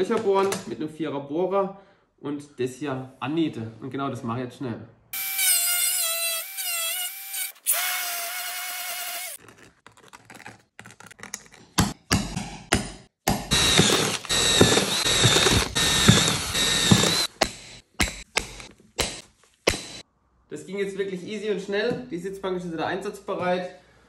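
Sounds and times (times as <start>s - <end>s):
cordless drill whining: 5.2s - 9.4s, 13.5s - 17.4s
drill boring through steel: 5.2s - 9.4s, 13.5s - 17.8s.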